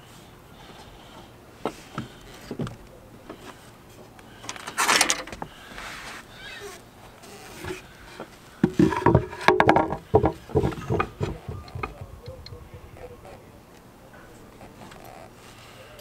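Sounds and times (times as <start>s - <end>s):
wooden knocks and clatters: 7.6s - 13.2s
faint taps: 8.6s - 12.8s.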